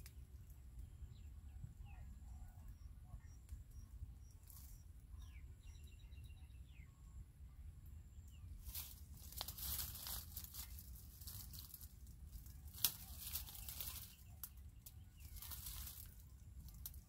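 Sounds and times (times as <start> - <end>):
twig clicks: 0.0 - 0.6, 8.6 - 17.0
leaves and twigs rustling: 4.4 - 4.8, 8.6 - 17.0.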